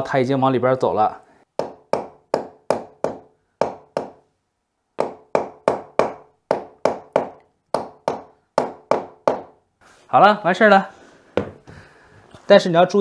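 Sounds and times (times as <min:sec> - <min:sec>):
hammer tapping on wooden block: 0:01.6 - 0:04.2, 0:05.0 - 0:09.6.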